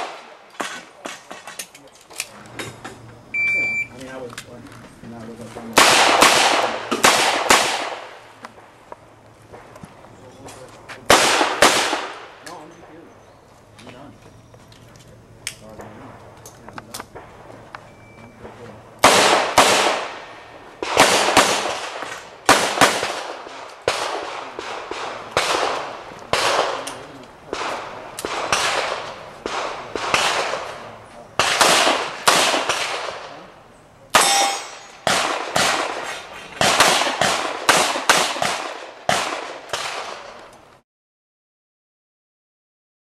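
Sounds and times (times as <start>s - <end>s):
pistol shots echoing: 0.0s - 1.1s, 5.8s - 8.7s, 11.1s - 13.0s, 19.0s - 33.5s, 34.1s - 40.4s.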